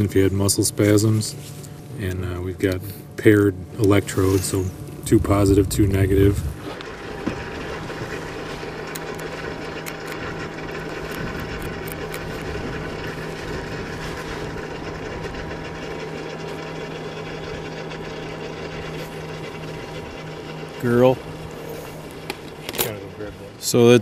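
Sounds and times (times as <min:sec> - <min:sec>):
motor humming: 0:00.0 - 0:24.0.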